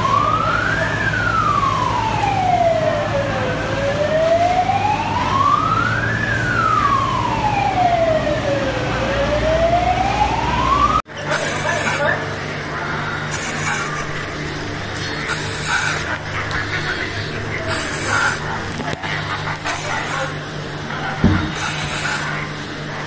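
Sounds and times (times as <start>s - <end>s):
fire engine siren wailing: 0.0s - 11.5s.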